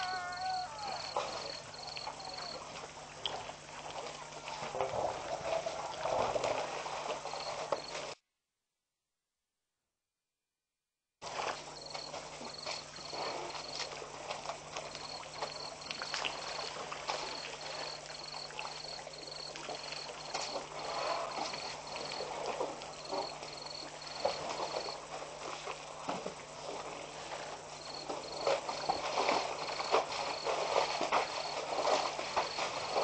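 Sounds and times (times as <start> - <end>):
elephants drinking and splashing: 0.0 - 8.2, 11.2 - 33.0.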